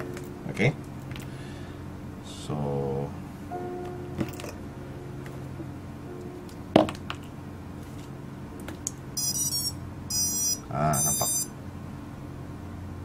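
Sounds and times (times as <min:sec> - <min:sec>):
high-pitched electronic beeps from motors: 0:09.2 - 0:11.6.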